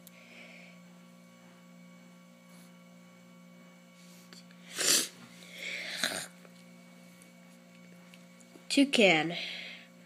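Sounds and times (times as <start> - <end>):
faint steady hum: 0.0 - 10.0
person breathing out: 4.7 - 6.3.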